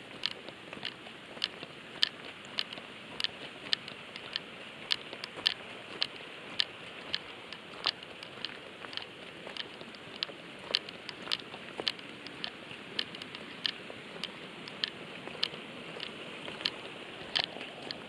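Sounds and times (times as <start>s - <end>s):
footsteps crunching on gravel: 0.0s - 14.4s.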